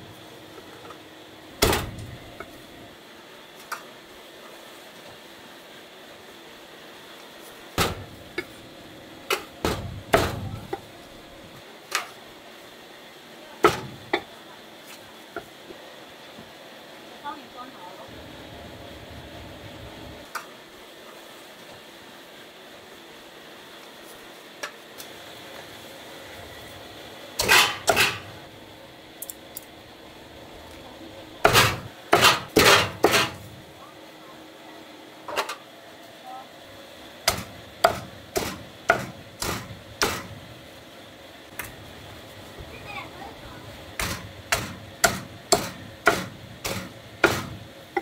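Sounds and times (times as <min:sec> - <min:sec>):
cleaver chopping on wooden block: 0:37.3 - 0:40.2, 0:44.0 - 0:48.0.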